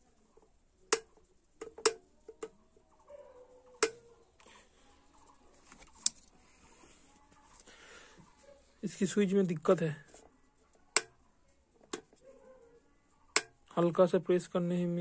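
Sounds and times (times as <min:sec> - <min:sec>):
kettle switch clicking: 0:13.4 - 0:13.6.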